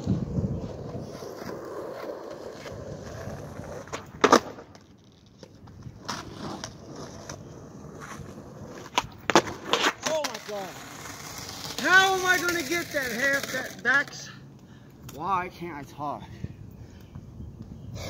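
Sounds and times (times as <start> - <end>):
skateboard wheels rolling on asphalt: 0.0 - 15.2, 17.2 - 18.0
skateboard clacking down: 8.8 - 14.2.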